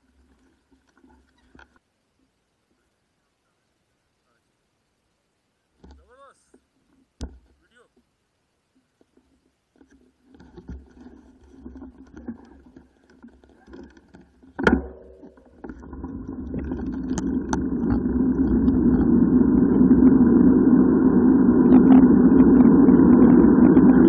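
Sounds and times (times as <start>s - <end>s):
wind rushing over microphone: 16.4s - 24.0s.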